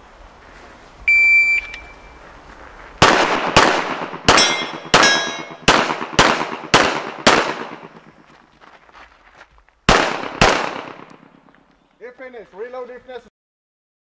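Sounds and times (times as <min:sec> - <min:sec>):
shot timer beep: 0:01.1 - 0:02.1
pistol shots: 0:03.0 - 0:08.2, 0:09.9 - 0:11.4.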